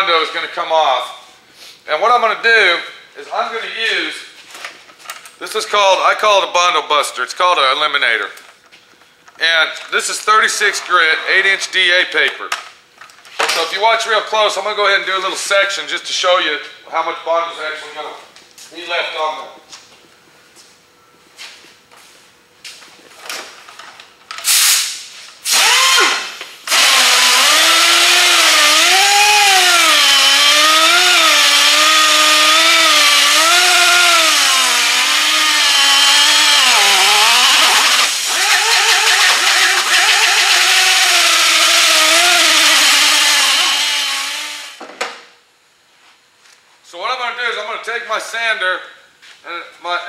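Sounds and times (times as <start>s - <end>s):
air sander whining: 24.5s - 44.8s.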